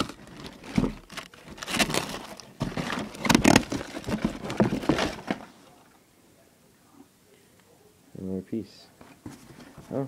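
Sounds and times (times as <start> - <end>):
packing paper crinkling and rustling: 0.0 - 5.8.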